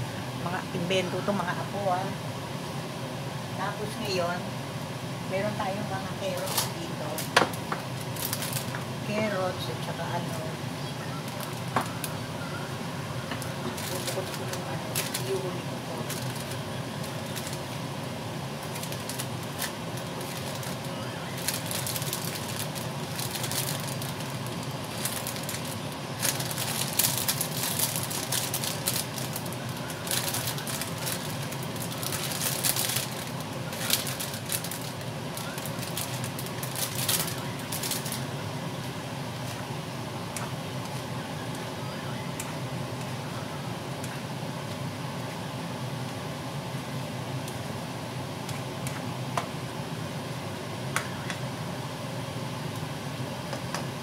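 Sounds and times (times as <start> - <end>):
plastic bag crinkling: 6.3 - 8.8, 13.4 - 17.8, 18.6 - 38.3.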